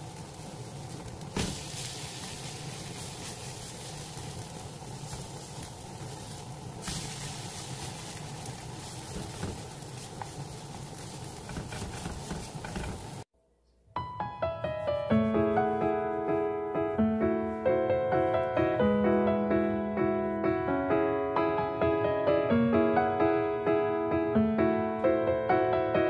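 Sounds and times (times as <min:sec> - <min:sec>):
patties sizzling in oil: 0:00.0 - 0:13.3.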